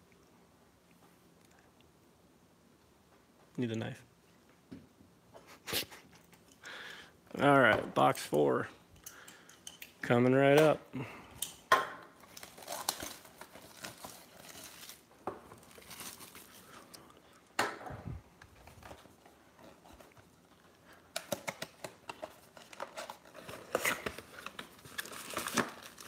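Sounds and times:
cardboard crinkling and tearing: 0:12.2 - 0:17.0, 0:21.1 - 0:26.0.

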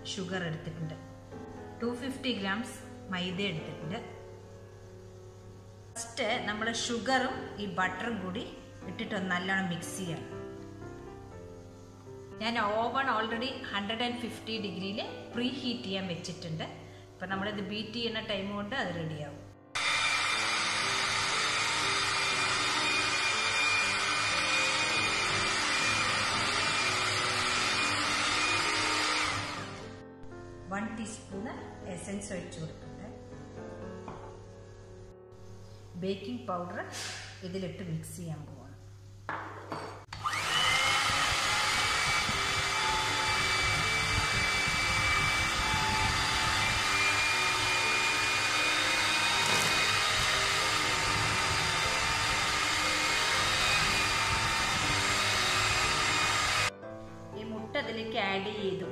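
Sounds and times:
electric mixer whining: 0:19.8 - 0:30.0, 0:40.1 - 0:56.8.

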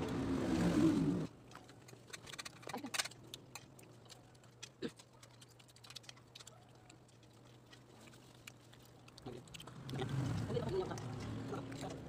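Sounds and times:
chewing and lip smacks: 0:01.4 - 0:12.0.

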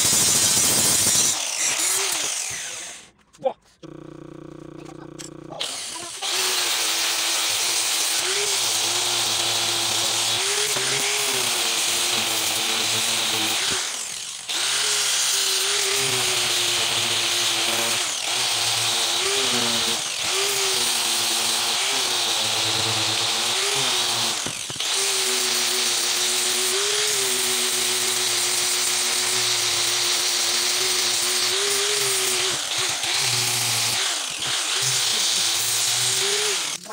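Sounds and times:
angle grinder sanding steel blade: 0:05.6 - 0:36.9.

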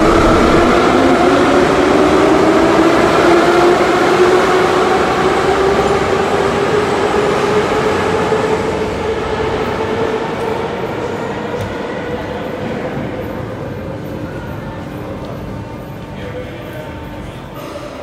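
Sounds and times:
traction motor whine rising: 0:00.0 - 0:03.4
metro train running: 0:00.0 - 0:18.0.

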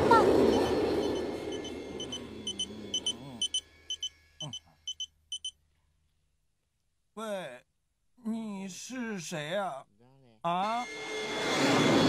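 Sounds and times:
high double beeps: 0:00.4 - 0:05.5
person groaning faintly: 0:02.1 - 0:03.5.

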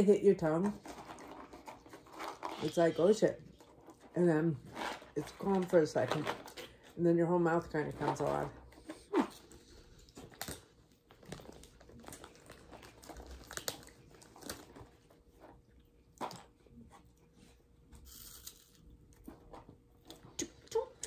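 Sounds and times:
snack bag crinkling: 0:00.7 - 0:06.7, 0:08.8 - 0:16.7, 0:18.0 - 0:20.3
cheese curls being chewed: 0:08.6 - 0:21.0.

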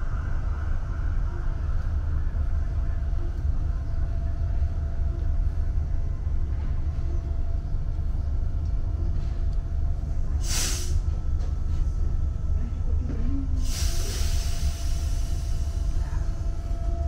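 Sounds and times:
low train interior hum: 0:00.0 - 0:17.0
brake air hiss: 0:10.4 - 0:11.1, 0:13.6 - 0:15.7.

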